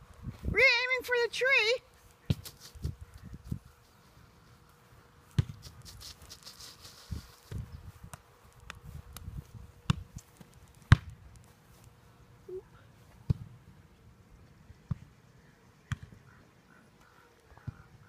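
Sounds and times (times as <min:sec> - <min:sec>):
foot kicking soccer ball: 0:05.3 - 0:06.4, 0:07.4 - 0:11.2, 0:13.1 - 0:13.6.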